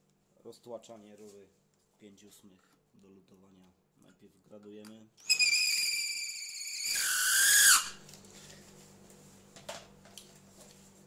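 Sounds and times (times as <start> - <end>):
drill bit squealing on copper pipe: 5.2 - 8.0.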